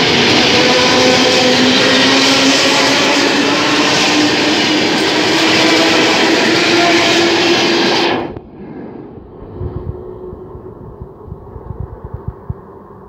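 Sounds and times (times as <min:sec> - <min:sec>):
steady train hum: 0:00.0 - 0:13.0
train wheel and rail noise: 0:00.0 - 0:13.0
low rumble: 0:08.1 - 0:13.0.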